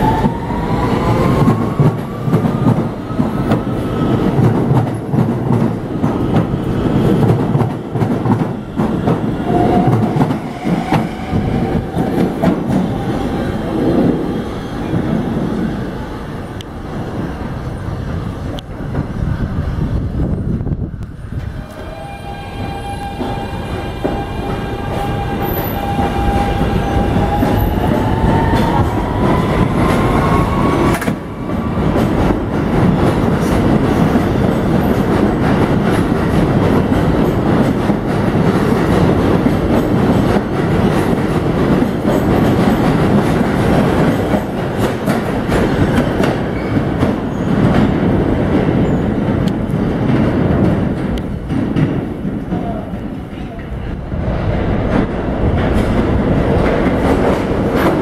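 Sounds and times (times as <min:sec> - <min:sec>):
train wheels rumbling and clattering: 0:00.0 - 0:58.0.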